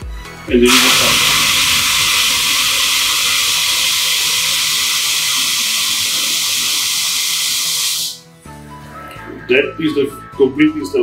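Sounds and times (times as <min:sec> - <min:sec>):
urinal flushing: 0:00.6 - 0:08.2
water jet hissing into steel trough: 0:00.6 - 0:08.2.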